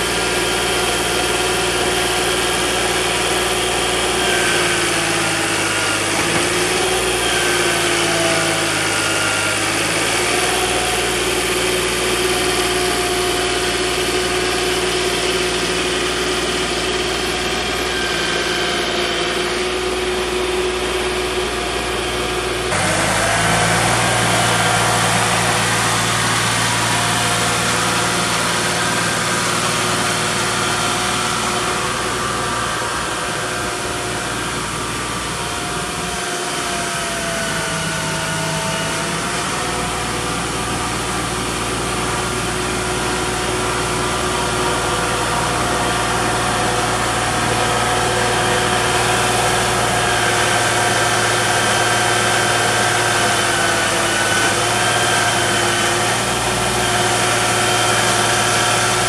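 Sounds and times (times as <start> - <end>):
diesel engine running: 0.0 - 59.0.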